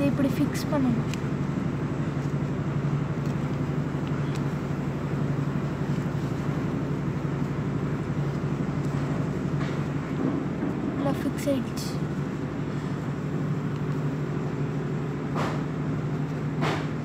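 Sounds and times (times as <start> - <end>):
low mechanical hum: 0.0 - 17.0
stiff paper rustling: 1.0 - 10.0.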